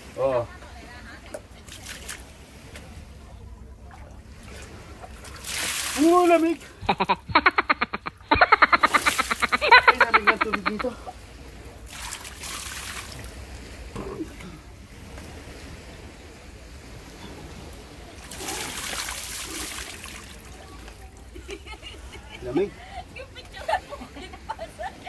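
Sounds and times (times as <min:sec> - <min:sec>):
water splashing onto rocks: 0:04.6 - 0:07.5, 0:08.4 - 0:10.9, 0:11.8 - 0:13.4, 0:18.2 - 0:21.1.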